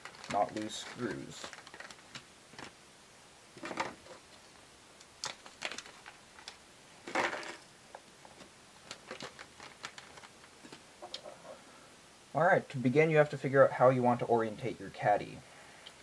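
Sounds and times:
plastic bags crinkling: 0.0s - 2.8s, 5.2s - 7.6s, 8.2s - 11.3s.

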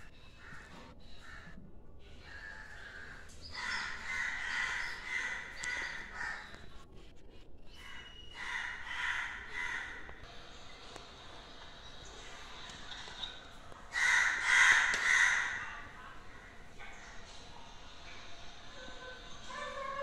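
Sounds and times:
crows cawing: 0.3s - 1.6s, 2.3s - 6.6s, 7.8s - 10.2s, 13.9s - 16.6s.

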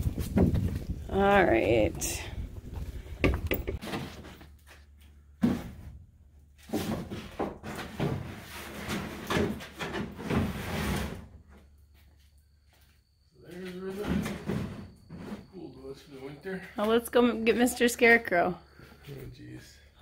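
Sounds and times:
knocks and bumps: 0.0s - 1.0s, 2.6s - 4.3s
rustling scrapes: 10.1s - 11.4s.

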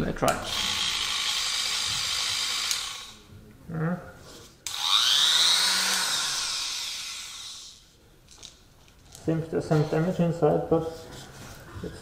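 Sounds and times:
electric grinder whining: 0.5s - 3.2s, 4.7s - 7.8s.

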